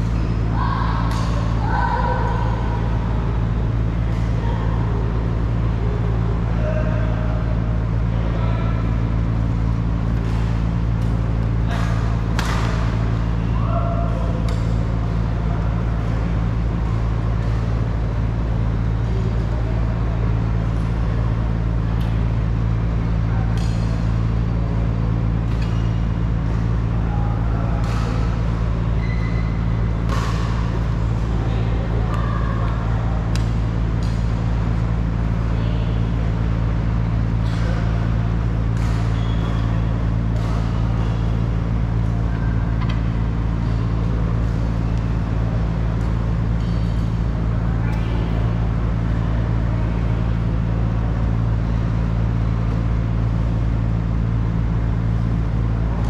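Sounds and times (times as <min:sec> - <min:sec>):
rackets striking shuttlecock: 0:00.0 - 0:01.6, 0:09.1 - 0:19.1, 0:22.0 - 0:31.4, 0:32.0 - 0:35.5, 0:36.2 - 0:47.3
loud low hum: 0:00.0 - 0:56.0
shoe squeaks: 0:29.0 - 0:29.7, 0:39.0 - 0:39.8.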